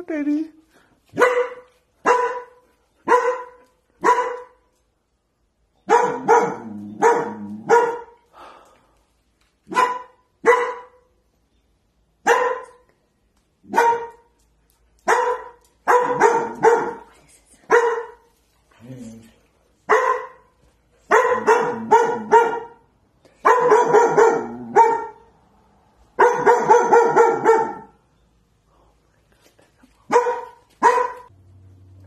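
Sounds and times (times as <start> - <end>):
puppy barking: 1.2 - 4.7, 5.8 - 8.2, 9.7 - 11.1, 12.2 - 12.9, 13.7 - 14.4, 15.0 - 17.1, 17.7 - 18.3, 19.9 - 20.5, 21.1 - 25.3, 26.2 - 28.0, 30.1 - 31.3.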